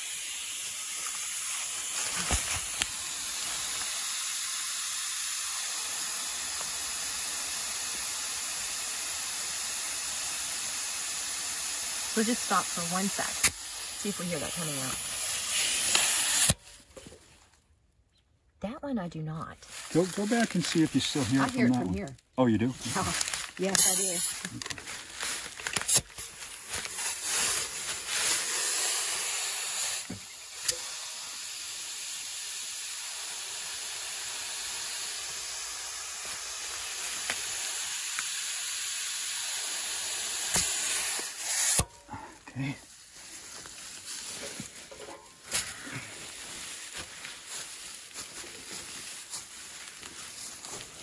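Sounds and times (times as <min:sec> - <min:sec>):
compressed air hissing: 0:00.0 - 0:16.7, 0:23.6 - 0:24.6, 0:25.8 - 0:47.0.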